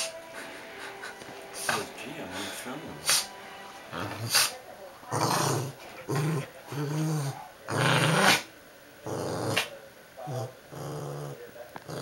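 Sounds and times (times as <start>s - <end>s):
small dog growling: 5.1s - 12.0s.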